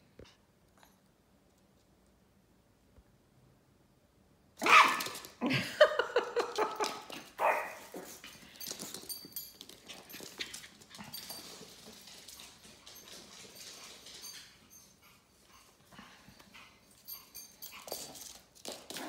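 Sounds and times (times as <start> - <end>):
small dogs yapping: 4.6 - 5.4.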